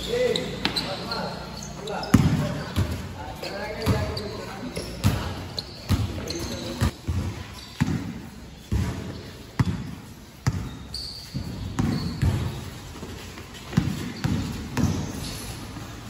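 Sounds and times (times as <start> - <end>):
basketball dribbling thuds: 2.0 - 3.1, 3.7 - 15.3.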